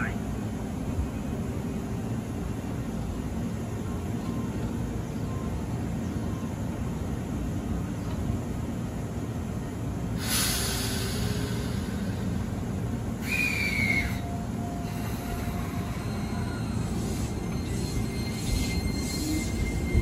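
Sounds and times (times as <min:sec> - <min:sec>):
electric train humming: 0:00.0 - 0:20.0
compressed air hiss: 0:10.2 - 0:15.9.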